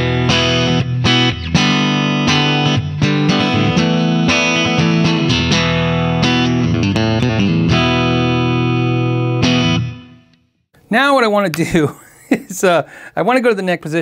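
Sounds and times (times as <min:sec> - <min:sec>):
electric guitar strumming chords: 0:00.0 - 0:10.4.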